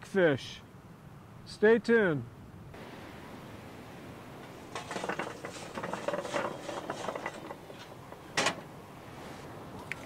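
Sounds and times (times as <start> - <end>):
charcoal clattering onto metal table: 4.7 - 8.6.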